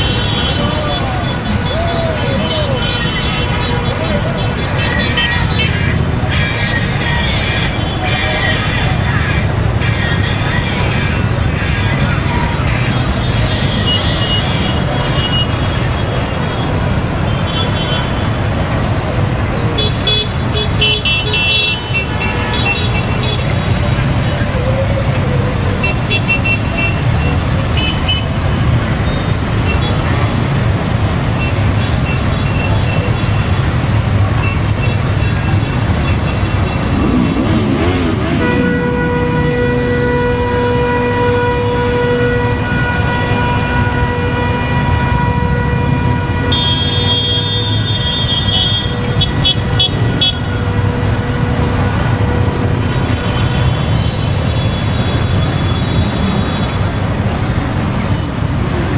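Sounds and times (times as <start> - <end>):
motorcycle engines rumbling: 0.0 - 58.9
horn sounding: 34.4 - 56.7
motorcycle engine revving: 36.4 - 39.4.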